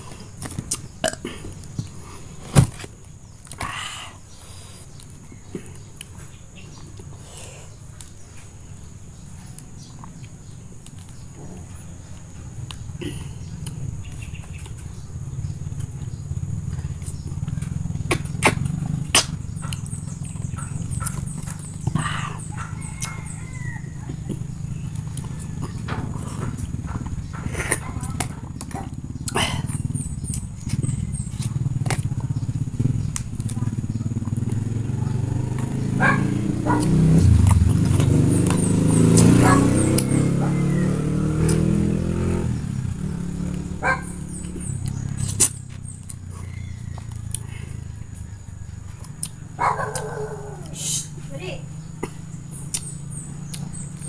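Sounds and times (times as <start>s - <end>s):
vehicle engine droning: 0.0s - 54.0s
wet smacking clicks: 16.7s - 22.0s, 24.1s - 32.3s, 33.1s - 34.7s, 36.7s - 40.2s, 41.4s - 41.8s, 49.0s - 50.8s, 52.0s - 54.0s.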